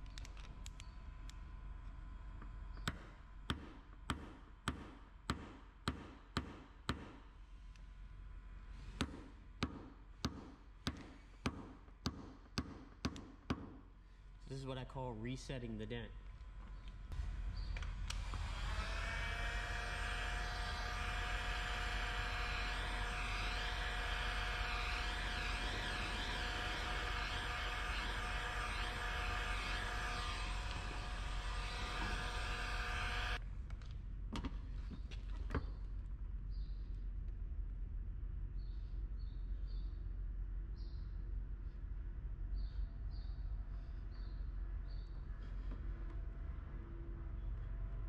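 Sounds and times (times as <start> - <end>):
motor hum: 16.1 - 33.4
heat gun air hiss: 19.6 - 33.4.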